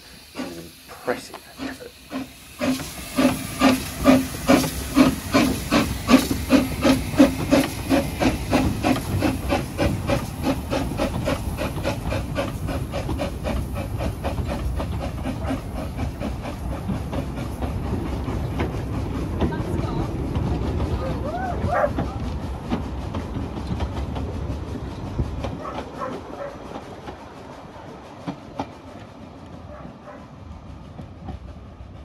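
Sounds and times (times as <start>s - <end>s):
steady steam hiss: 0.0s - 21.5s
steam locomotive chuffing: 0.0s - 32.0s.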